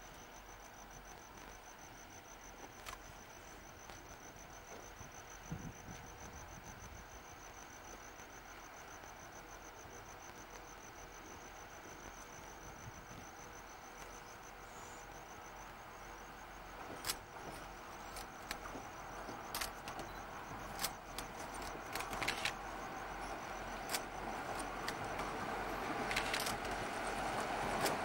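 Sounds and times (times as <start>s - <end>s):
insects chirping: 0.0s - 28.0s
train running over a bridge: 16.2s - 28.0s
wheels clicking on rails: 16.7s - 28.0s.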